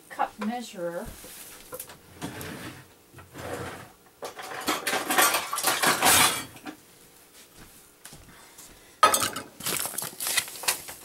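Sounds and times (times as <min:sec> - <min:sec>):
metal kitchen utensils clattering: 0:03.6 - 0:06.8, 0:09.0 - 0:09.6.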